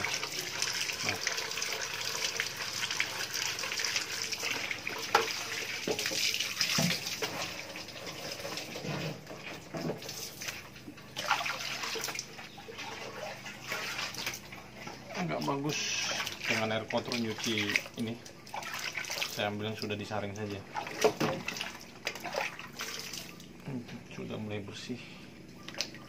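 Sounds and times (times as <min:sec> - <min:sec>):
hose water splashing on concrete: 0:00.0 - 0:23.4.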